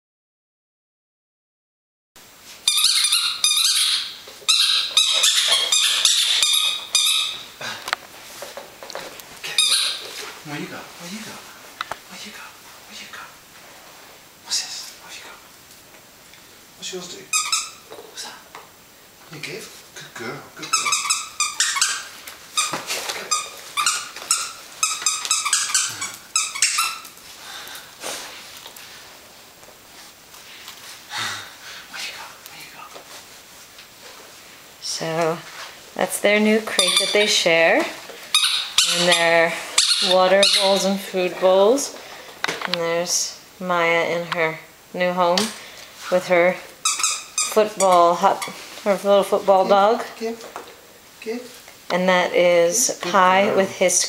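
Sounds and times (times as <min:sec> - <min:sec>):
squeaky dog toy squeaking: 0:02.6 - 0:07.5, 0:09.6 - 0:10.0, 0:17.3 - 0:17.9, 0:20.6 - 0:27.1, 0:36.7 - 0:37.4, 0:38.3 - 0:40.9, 0:46.8 - 0:48.6.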